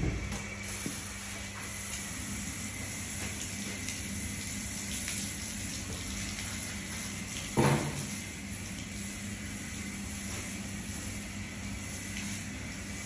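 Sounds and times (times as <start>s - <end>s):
garden hose spraying water: 0.6s - 13.0s
water splashing on concrete: 2.9s - 8.9s.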